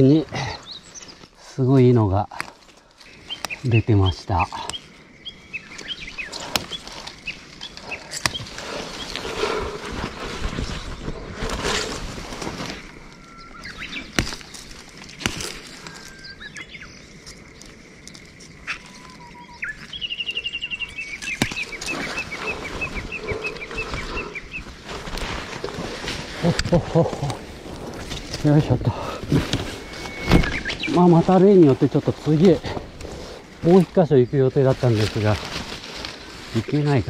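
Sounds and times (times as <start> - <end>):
rustling of undergrowth: 0.0 - 37.0
songbirds singing: 0.0 - 37.0
stems snapping: 1.7 - 4.9, 5.7 - 13.0, 13.6 - 16.2, 17.2 - 19.1, 21.1 - 34.0
repeated bird chirps: 18.6 - 24.7, 29.5 - 31.4.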